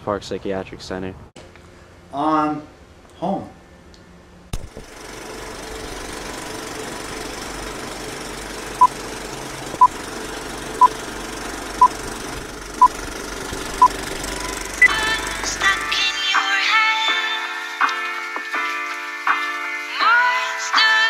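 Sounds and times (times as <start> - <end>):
film projector whir: 4.6 - 16.0
music: 14.8 - 21.0.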